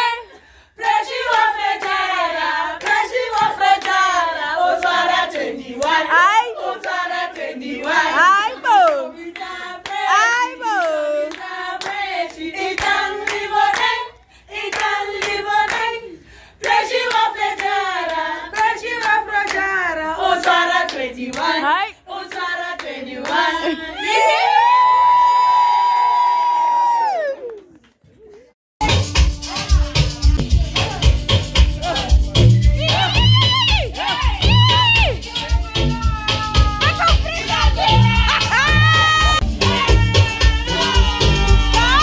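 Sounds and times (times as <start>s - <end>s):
group singing: 0.0s - 24.4s, 29.0s - 42.0s
rhythmic hand clapping: 0.8s - 14.0s, 14.6s - 15.9s, 16.6s - 21.6s, 28.8s - 42.0s.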